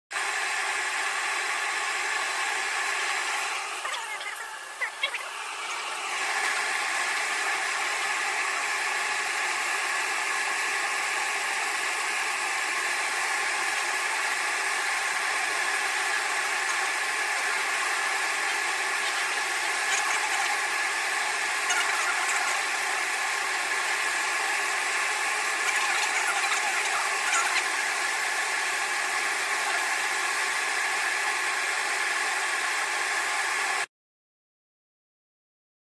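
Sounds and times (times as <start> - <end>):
laser engraver buzzing hiss: 1.8 - 24.3.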